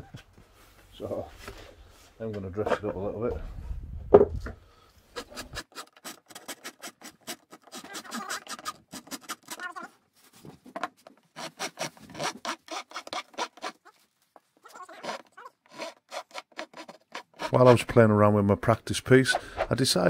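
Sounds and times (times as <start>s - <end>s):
hand file rasping: 5.2s - 9.6s, 11.3s - 13.9s, 14.7s - 18.0s.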